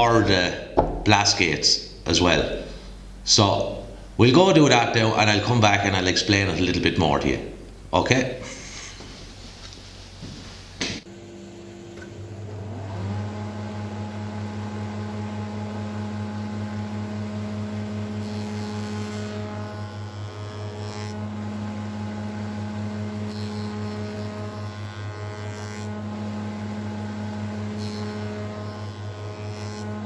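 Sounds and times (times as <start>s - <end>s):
spindle moulder humming: 0.0s - 30.0s
cutter hissing on wood: 16.4s - 30.0s.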